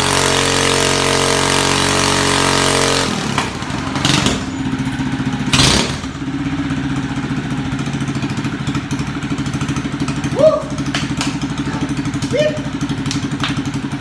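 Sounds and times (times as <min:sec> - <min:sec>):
quad engine revving and idling: 0:00.0 - 0:14.0.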